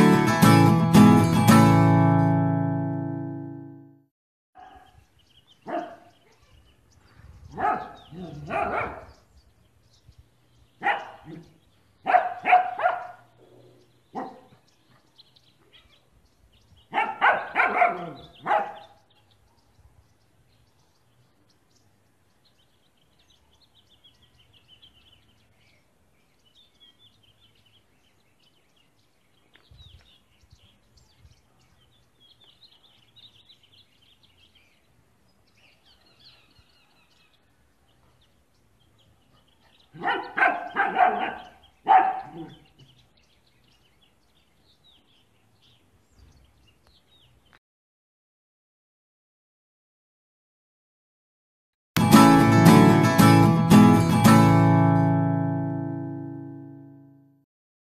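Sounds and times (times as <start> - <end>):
puppy barking: 4.6 - 4.9, 5.6 - 6.4, 7.5 - 9.2, 10.8 - 13.4, 14.1 - 14.6, 16.9 - 19.7, 39.4 - 42.6
faint birds chirping: 4.6 - 47.6.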